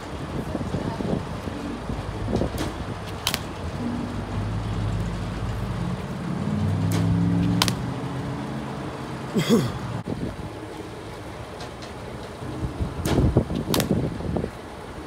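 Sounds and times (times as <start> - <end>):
vehicle engine running: 0.0 - 14.8
sharp cracks: 2.5 - 3.7, 6.9 - 8.0, 13.0 - 14.0.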